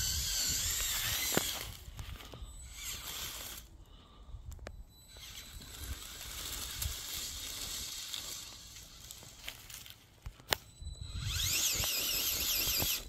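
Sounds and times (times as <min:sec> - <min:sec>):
wheels crunching dry leaves: 0:00.0 - 0:03.7, 0:05.2 - 0:10.6.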